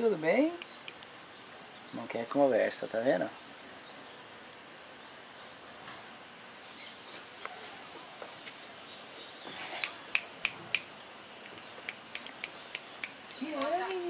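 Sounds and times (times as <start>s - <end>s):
fingers snapping: 0.5s - 1.1s, 9.8s - 14.0s.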